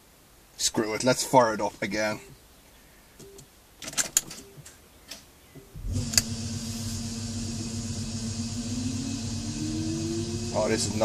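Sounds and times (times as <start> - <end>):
electric drive humming and whining: 5.8 - 11.0.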